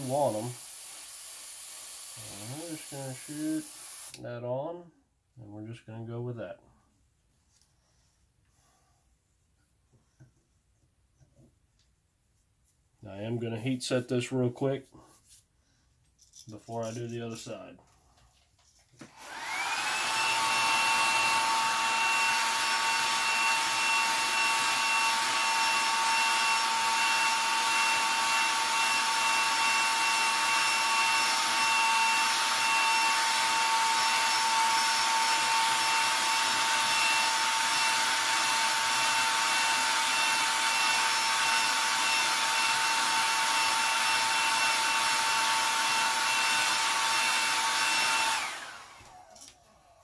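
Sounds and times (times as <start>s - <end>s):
hair dryer running: 0.0s - 4.2s, 19.0s - 50.0s.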